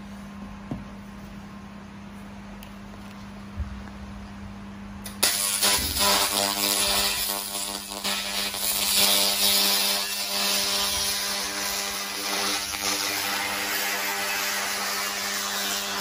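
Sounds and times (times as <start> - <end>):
buzzing hum: 3.0 - 16.0
laser cleaner hissing: 5.1 - 16.0.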